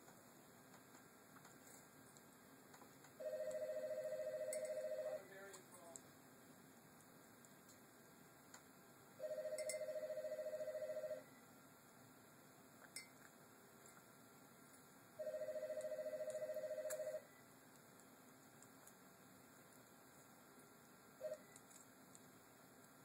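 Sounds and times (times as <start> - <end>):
warbling telephone ring: 3.2 - 5.2, 9.2 - 11.3, 15.2 - 17.3.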